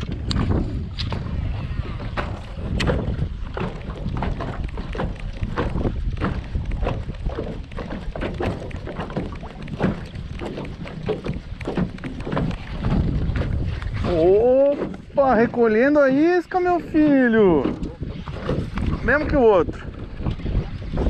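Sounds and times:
wind rumble on microphone: 0:00.0 - 0:21.0
lure knocks and splashes: 0:02.0 - 0:15.3.

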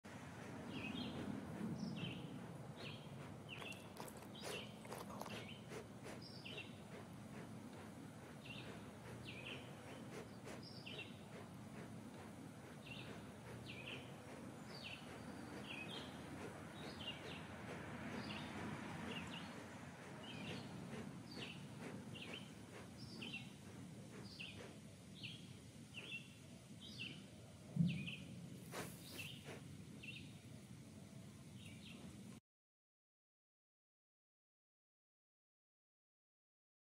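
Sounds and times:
faint outdoor background: 0:00.1 - 0:32.4
small bird chirping: 0:00.7 - 0:17.5, 0:18.1 - 0:27.3, 0:27.9 - 0:30.5.

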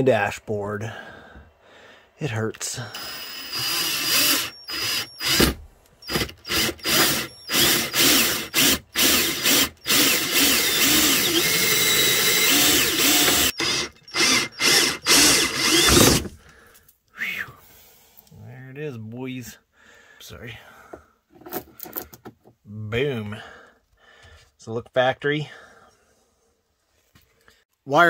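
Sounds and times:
drill with hole saw cutting plastic: 0:02.9 - 0:16.4.

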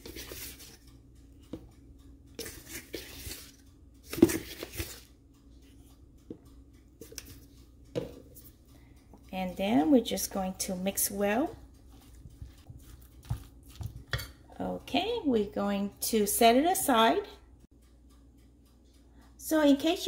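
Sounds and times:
spoon scraping and rustling: 0:00.0 - 0:00.9, 0:02.4 - 0:05.9, 0:07.0 - 0:08.5, 0:11.8 - 0:14.5.

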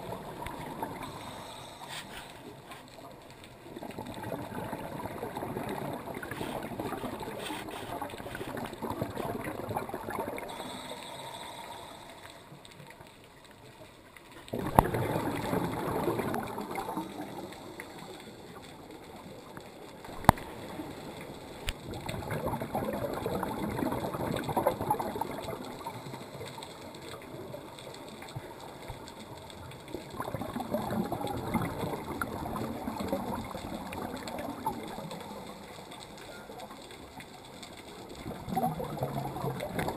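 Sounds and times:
diver exhaling bubbles underwater: 0:03.7 - 0:12.5, 0:14.5 - 0:18.1, 0:22.0 - 0:26.1, 0:38.2 - 0:39.9.

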